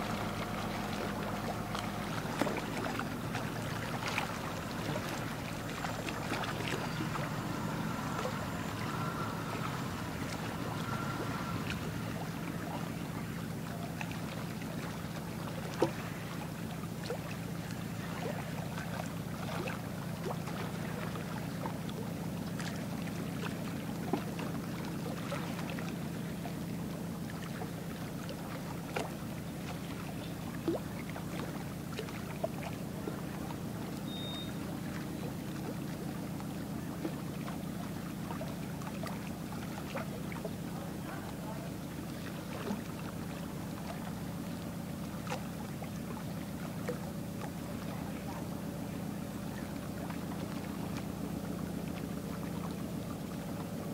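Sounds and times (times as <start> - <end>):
ship engines droning: 0.0 - 30.8.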